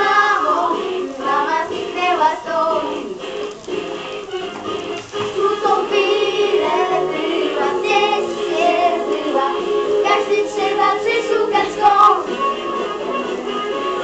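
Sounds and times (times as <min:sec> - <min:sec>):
young voice singing: 0:00.0 - 0:03.2, 0:05.4 - 0:12.4
instrumental backing track: 0:00.0 - 0:14.0.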